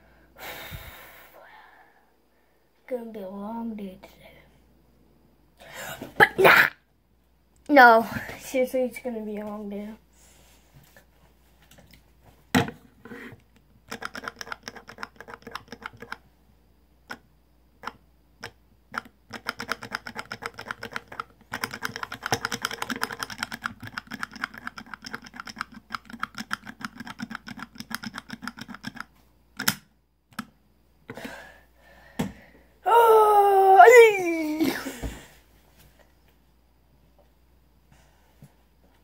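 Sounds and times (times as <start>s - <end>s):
plastic toy clicks and taps: 18.4s - 30.5s.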